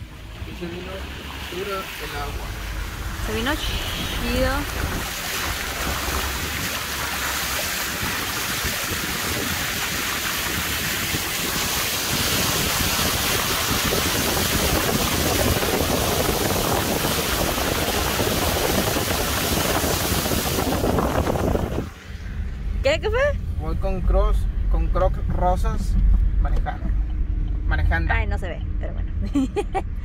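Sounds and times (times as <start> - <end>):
tyres splashing through floodwater: 0.0 - 23.3.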